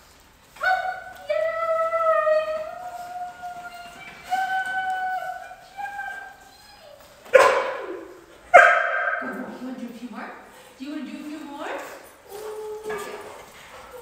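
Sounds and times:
dog whining: 2.6s - 8.4s, 12.2s - 14.0s
dog barking: 7.3s - 9.4s.

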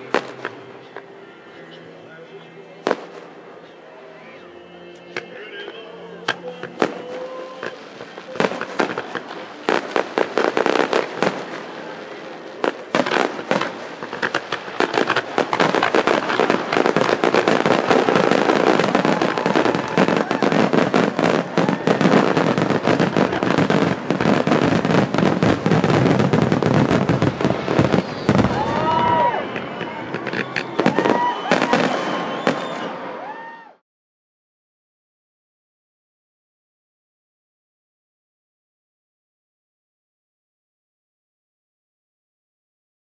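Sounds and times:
firework bangs and crackle: 0.0s - 0.6s, 2.8s - 3.4s, 6.3s - 33.6s.

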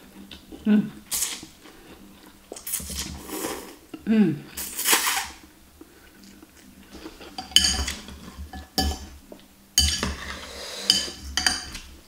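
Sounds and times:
cutlery clinking on glass bowl: 7.4s - 9.1s, 9.8s - 11.8s.

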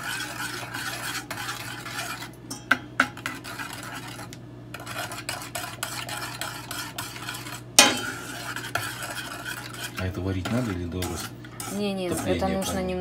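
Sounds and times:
metal spoon stirring in saucepan: 0.0s - 13.0s
spoon clinking on pot: 2.5s - 3.1s.

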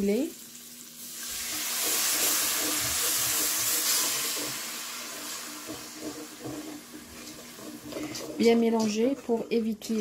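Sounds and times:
broth hissing in hot pot: 0.0s - 8.4s.

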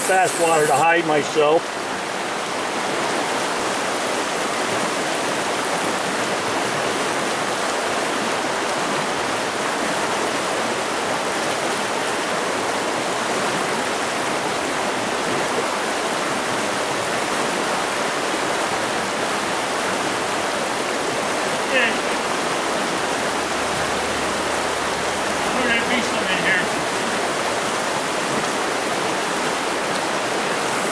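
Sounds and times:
stream rushing over stones: 0.0s - 30.9s.

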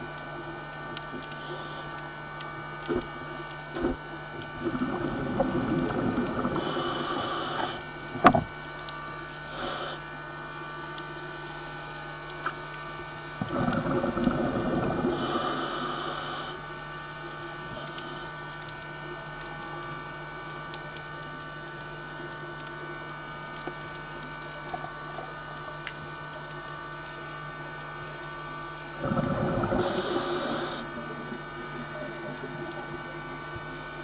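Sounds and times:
regulator exhalation bubbling: 2.9s - 3.1s, 3.7s - 8.5s, 13.4s - 16.6s, 29.0s - 34.0s.

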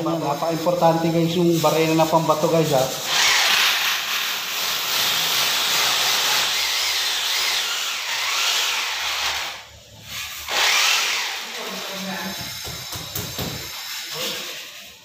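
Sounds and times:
electric drill boring into concrete: 3.0s - 14.7s.

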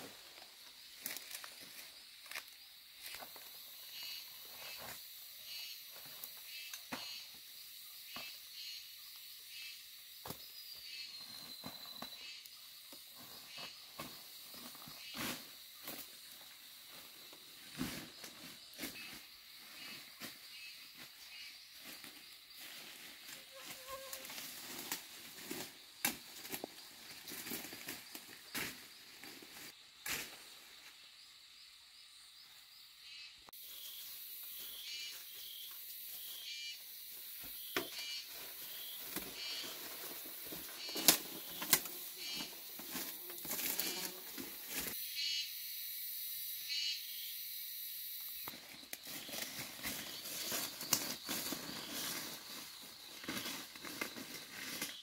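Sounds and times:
insects chirring: 0.0s - 55.0s
leaves and twigs snapping: 1.0s - 3.2s, 40.8s - 44.0s, 48.5s - 51.6s.

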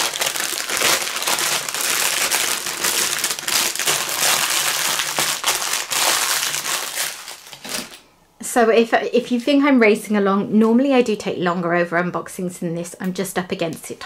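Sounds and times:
plastic bag crinkling: 0.0s - 8.1s.

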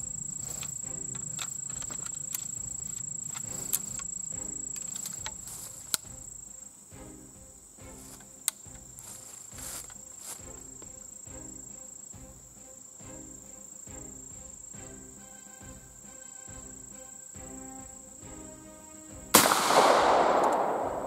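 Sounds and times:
crickets droning: 0.0s - 21.0s
rifle lock metallic clicks: 19.4s - 21.0s.

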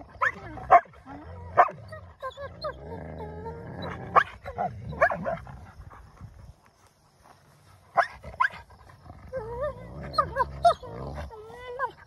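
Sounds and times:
puppies growling: 8.2s - 12.0s.

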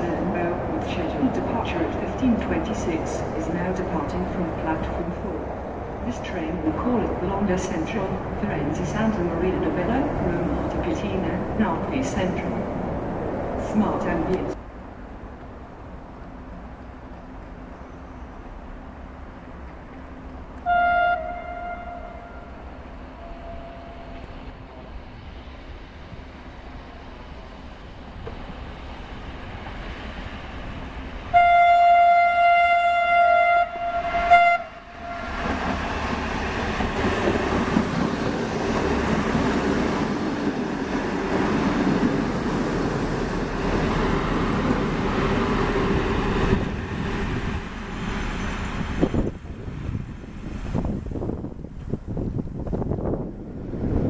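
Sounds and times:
train horn blasts: 20.6s - 24.3s, 31.3s - 35.6s.

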